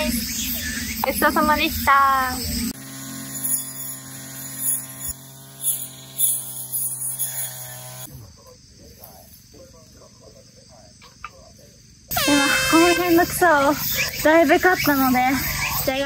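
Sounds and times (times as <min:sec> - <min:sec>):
faint chirps: 0:00.0 - 0:01.4
brush cutter engine buzzing: 0:00.0 - 0:08.1, 0:12.1 - 0:16.0.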